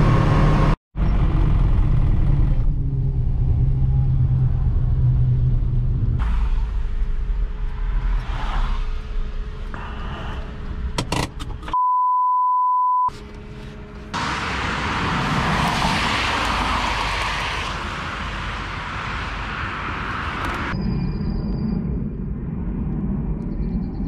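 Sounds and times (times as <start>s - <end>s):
car cabin engine and road noise: 0.0s - 20.8s
censor bleep tone: 11.8s - 13.1s
loud rushing noise: 14.2s - 20.8s.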